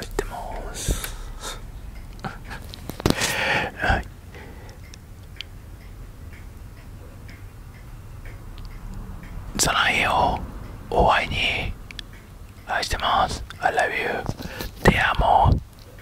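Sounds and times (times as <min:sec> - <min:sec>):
breathy whispers: 0:00.0 - 0:01.7, 0:02.3 - 0:04.9, 0:09.6 - 0:11.8, 0:12.7 - 0:15.6
low background hum: 0:00.0 - 0:16.0.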